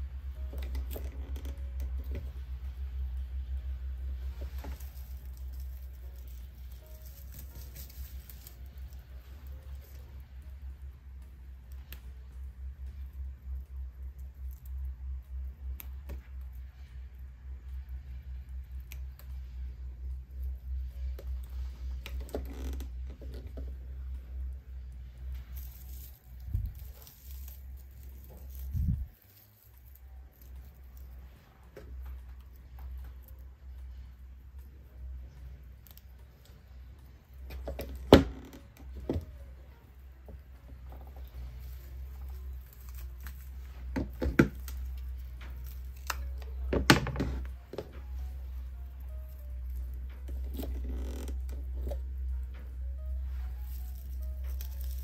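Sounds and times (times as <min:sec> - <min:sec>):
dried flower stems clicking and rustling: 0:00.0 - 0:55.0
steady low hum: 0:00.0 - 0:55.0.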